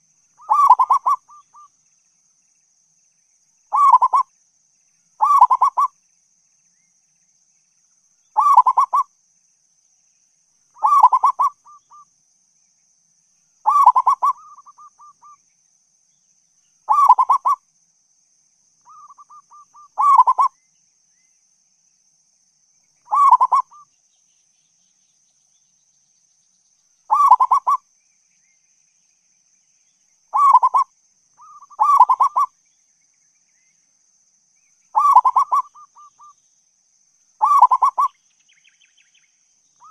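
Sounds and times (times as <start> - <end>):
dove cooing: 0.4 - 1.7, 3.7 - 4.3, 5.2 - 5.9, 8.4 - 9.0, 10.8 - 11.8, 13.7 - 15.1, 16.9 - 17.6, 18.9 - 20.5, 23.1 - 23.8, 27.1 - 27.8, 30.4 - 32.5, 35.0 - 36.3, 37.4 - 38.1.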